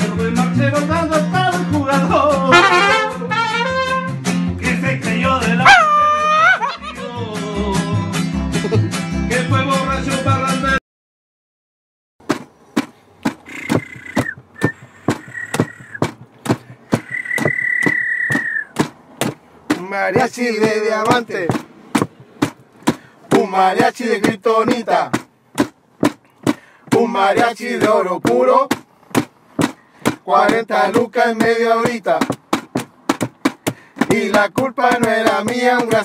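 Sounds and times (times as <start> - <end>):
steady drumbeat: 12.2 - 36.0
whistle-like tone: 13.4 - 16.1, 16.9 - 18.8.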